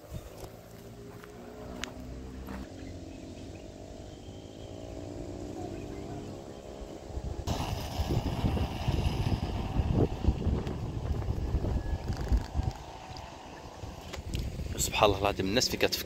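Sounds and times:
wind buffeting microphone: 4.7 - 15.6.

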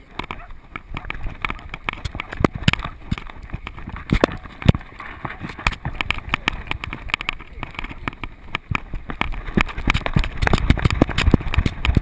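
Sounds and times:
paws splashing through shallow water: 0.0 - 12.0.

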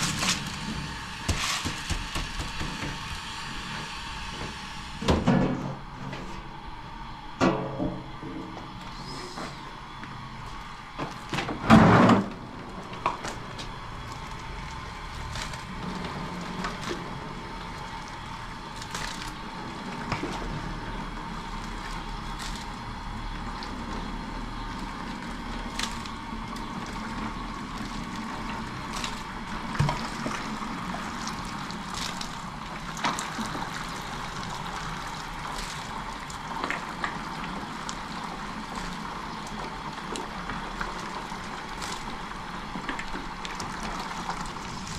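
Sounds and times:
water splashing and pouring: 0.0 - 3.7, 13.3 - 44.9.

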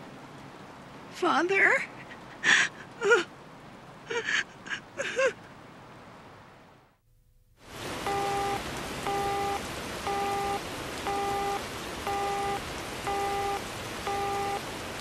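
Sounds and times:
steady rain: 0.0 - 7.0, 7.6 - 15.0
telephone busy signal beeps: 8.0 - 14.6.

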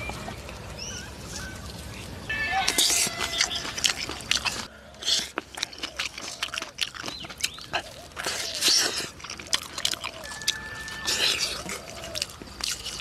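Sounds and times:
man chewing with lip smacks: 1.3 - 13.0
hissing slurp: 7.4 - 13.0.

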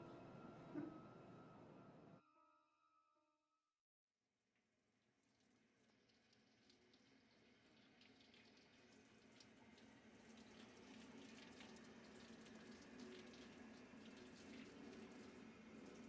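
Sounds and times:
tap water running into sink: 5.8 - 16.0.

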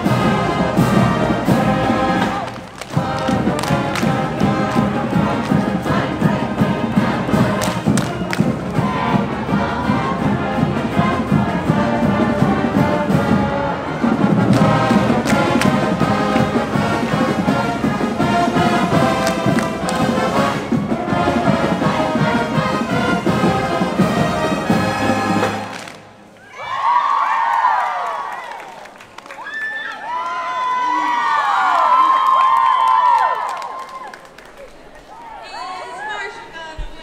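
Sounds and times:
drum hits: 0.0 - 13.5, 14.1 - 25.7
marching band brass tune: 0.0 - 26.4.

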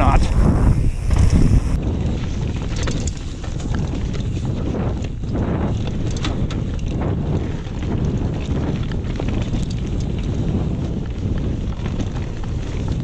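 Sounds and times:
tyres rumbling over dirt: 0.0 - 5.4
bike rattling and clicking: 0.0 - 13.0
wind rushing over microphone: 0.0 - 13.0.

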